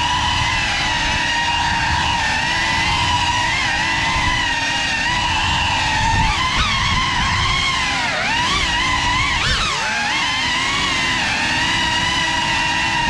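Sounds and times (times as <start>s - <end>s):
drone motors whining: 0.0s - 13.0s.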